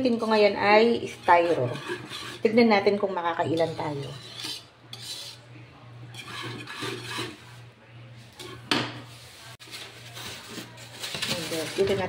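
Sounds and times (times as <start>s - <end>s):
whisk scraping in metal wok: 0.0s - 12.0s
steady low hum: 0.1s - 9.6s.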